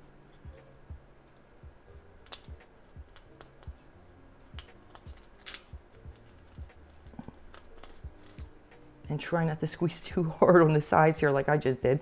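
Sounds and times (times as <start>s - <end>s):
plastic ball and metal cap clicking: 2.2s - 8.5s.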